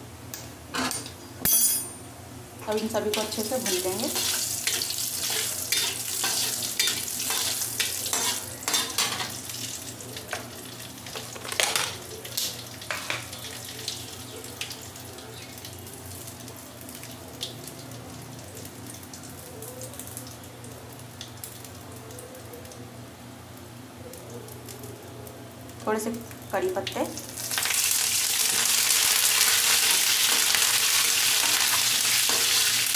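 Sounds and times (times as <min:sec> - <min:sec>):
seeds sizzling and popping in oil: 0:03.1 - 0:10.5, 0:26.2 - 0:32.9
metal spoon stirring in pan: 0:03.2 - 0:09.4.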